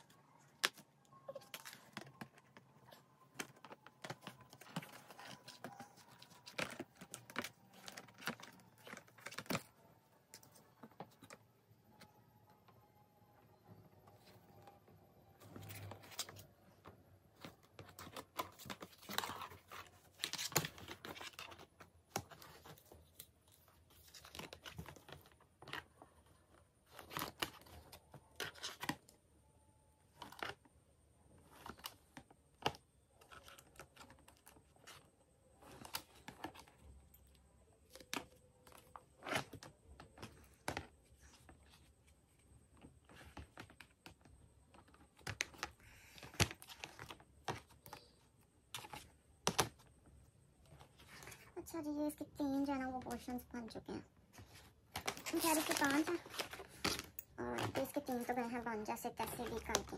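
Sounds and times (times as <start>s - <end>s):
plastic rustling: 54.3s - 59.9s.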